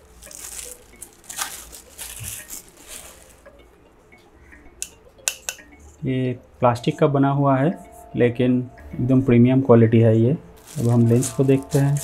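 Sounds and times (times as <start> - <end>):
plastic wrap crinkling: 0.0 - 3.5, 10.6 - 12.0.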